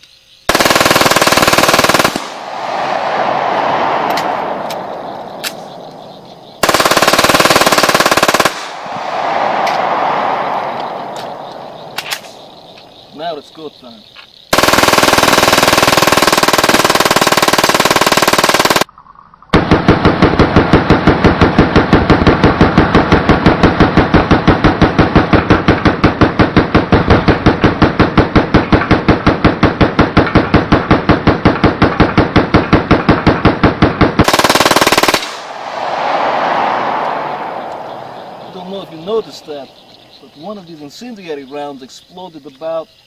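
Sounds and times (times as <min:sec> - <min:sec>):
automatic pistol fire: 0:00.5 - 0:03.0, 0:06.6 - 0:09.4, 0:14.5 - 0:18.9, 0:19.6 - 0:37.6.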